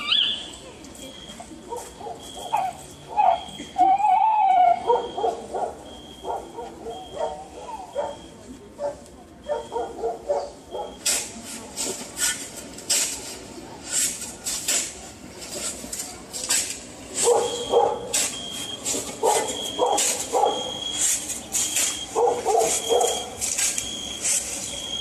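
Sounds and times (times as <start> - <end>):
dog barking: 4.7 - 8.2, 8.8 - 11.0, 17.2 - 18.1, 19.2 - 20.7, 22.2 - 23.3.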